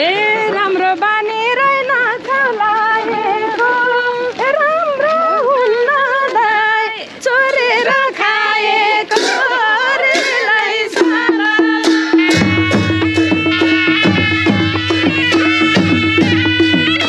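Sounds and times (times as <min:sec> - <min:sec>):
steady held note: 0:11.0 - 0:17.0.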